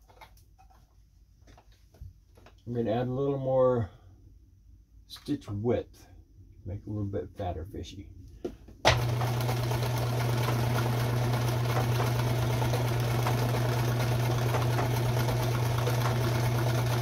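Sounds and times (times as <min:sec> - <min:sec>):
sewing machine running: 0:08.9 - 0:17.0.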